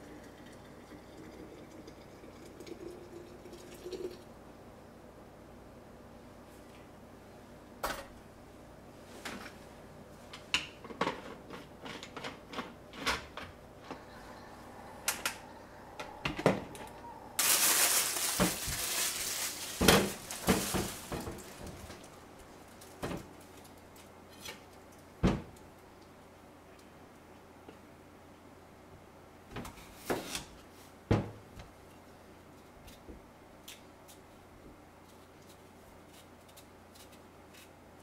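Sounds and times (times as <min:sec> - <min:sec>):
loud hiss: 0:17.4 - 0:21.3.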